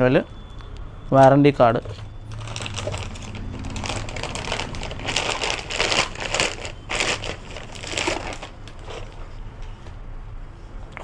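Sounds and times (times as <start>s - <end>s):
plastic bag crinkling: 2.3s - 9.2s.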